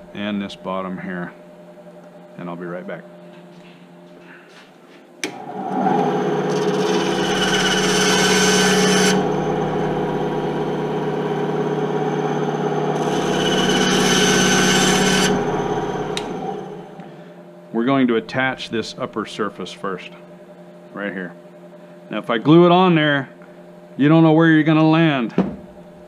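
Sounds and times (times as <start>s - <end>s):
bandsaw motor hum: 5.2s - 17.3s
saw blade cutting plastic: 6.5s - 9.3s, 13.0s - 16.4s.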